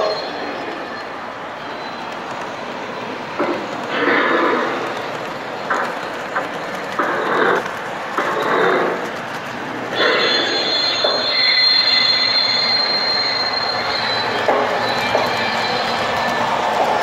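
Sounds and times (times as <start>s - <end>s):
high-pitched wheel squeal: 0.0s - 3.1s, 10.0s - 17.0s
freight car rolling rumble and clatter: 2.0s - 17.0s.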